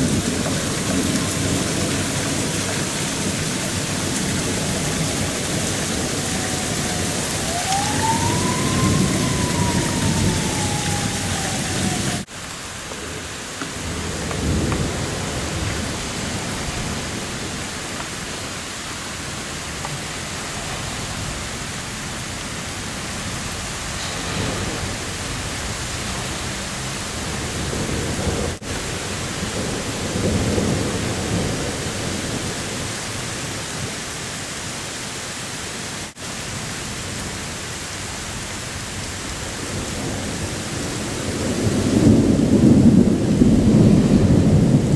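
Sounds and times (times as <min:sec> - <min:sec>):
thunder rumbling: 0:00.0 - 0:33.0, 0:38.8 - 0:44.9
heavy rain pouring: 0:00.0 - 0:44.9
siren wailing: 0:04.9 - 0:12.3.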